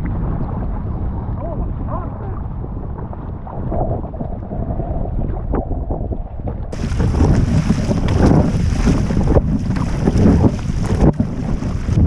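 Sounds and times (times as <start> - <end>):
choppy sea water: 0.0 - 12.0
wind buffeting microphone: 0.0 - 12.0
paddle splashing: 6.7 - 12.0.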